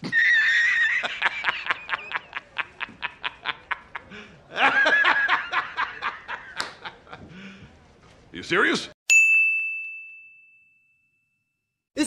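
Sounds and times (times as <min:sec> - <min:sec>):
man laughing: 0:00.0 - 0:07.4.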